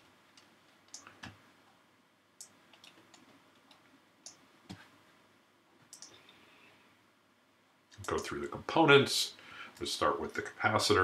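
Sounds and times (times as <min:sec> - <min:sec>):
faint room hiss: 0:00.0 - 0:11.0
computer mouse clicks: 0:00.4 - 0:01.4, 0:02.4 - 0:04.8, 0:05.8 - 0:06.3.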